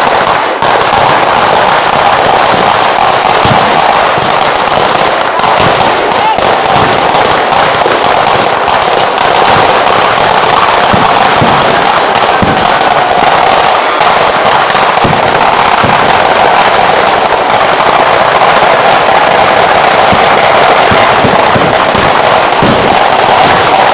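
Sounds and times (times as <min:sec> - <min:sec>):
firecrackers crackling: 0:00.0 - 0:23.9
deep firework thumps: 0:01.9 - 0:13.5, 0:14.9 - 0:18.1, 0:20.0 - 0:23.9.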